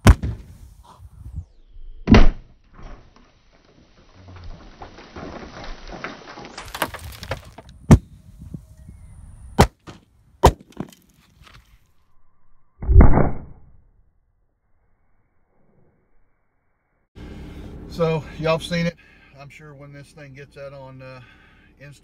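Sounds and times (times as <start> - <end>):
sharp underground booms: 0.0 - 0.6, 2.0 - 3.0, 12.8 - 13.8.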